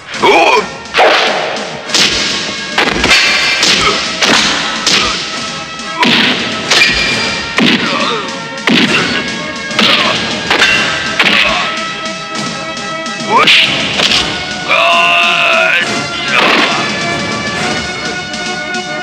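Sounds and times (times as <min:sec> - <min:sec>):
faint music score: 0:00.0 - 0:19.0
punch and hit sound effects: 0:01.0 - 0:05.4, 0:06.0 - 0:08.1, 0:08.7 - 0:11.7, 0:13.4 - 0:14.4, 0:16.4 - 0:17.0.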